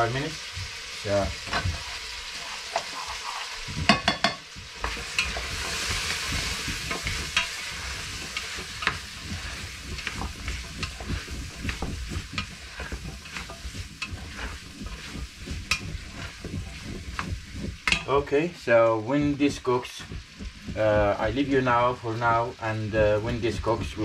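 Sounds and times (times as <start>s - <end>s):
vegetables sizzling in oil: 0.0s - 24.0s
spoon scraping and knocking pot: 1.4s - 18.2s.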